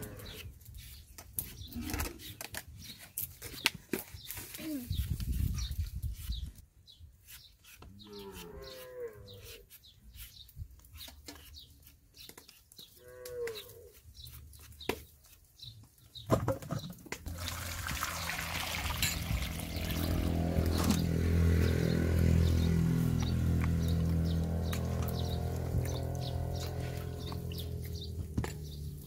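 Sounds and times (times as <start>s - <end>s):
peeler scraping mango: 7.2s - 13.0s
water pouring into steel bowl: 17.3s - 20.3s.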